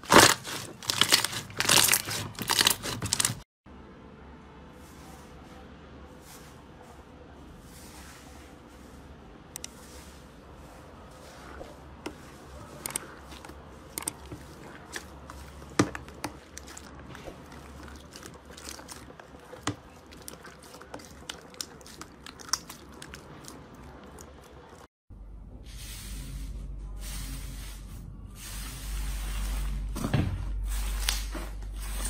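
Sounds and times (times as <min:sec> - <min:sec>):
slime squishing: 0:00.0 - 0:03.4, 0:11.3 - 0:24.9.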